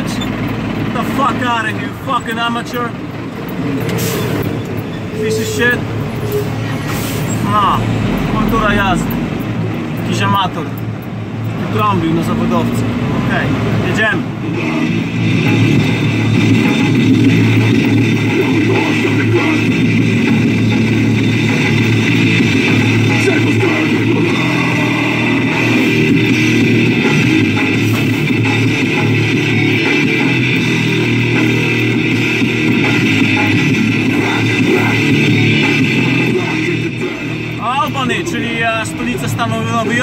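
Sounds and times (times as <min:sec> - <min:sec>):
rock music on radio: 0:13.8 - 0:40.0.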